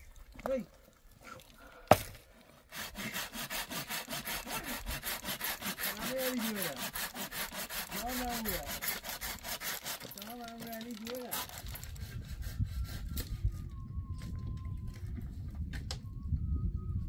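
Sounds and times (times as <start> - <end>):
hand saw cutting branch: 1.9 - 13.4.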